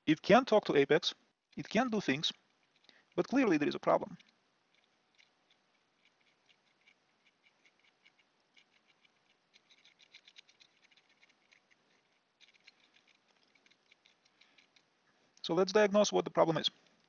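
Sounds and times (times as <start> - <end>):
probe tip scraping and tapping chip: 4.1 - 14.9.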